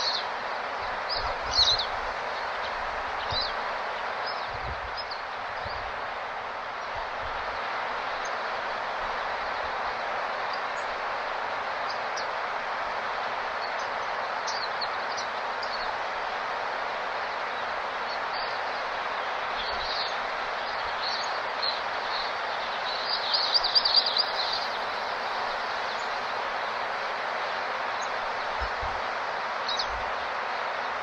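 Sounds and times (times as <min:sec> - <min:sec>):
small birds chirping: 0:00.0 - 0:05.9, 0:18.1 - 0:26.8
rapid twittering calls: 0:00.0 - 0:06.0, 0:17.4 - 0:28.8
steady rushing hiss: 0:00.0 - 0:31.0.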